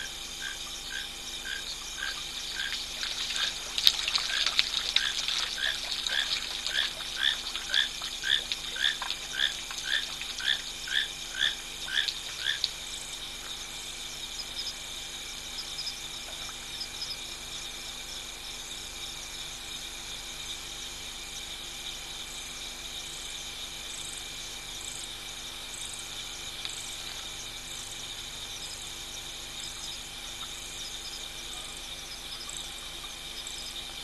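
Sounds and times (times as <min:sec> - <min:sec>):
frog calling: 0:00.0 - 0:17.5
crickets and insects chorus: 0:00.0 - 0:34.0.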